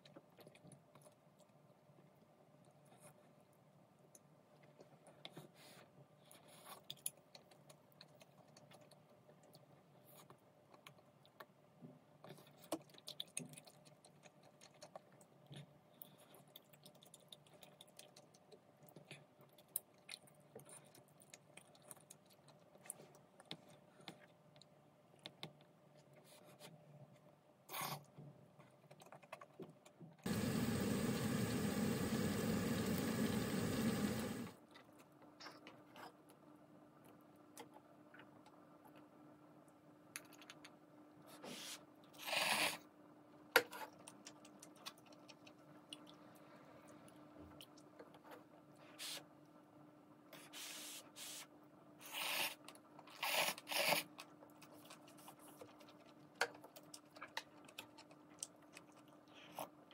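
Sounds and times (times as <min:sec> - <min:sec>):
water bubbling in a pot: 0:30.3 - 0:34.6.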